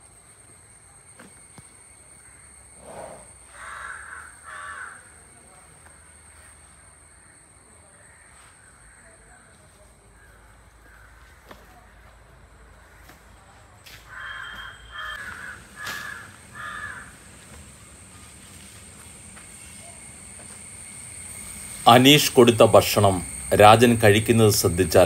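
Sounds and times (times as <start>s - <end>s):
crow cawing: 3.5s - 5.2s, 7.9s - 9.5s, 10.2s - 12.1s, 12.8s - 13.3s, 13.9s - 17.4s.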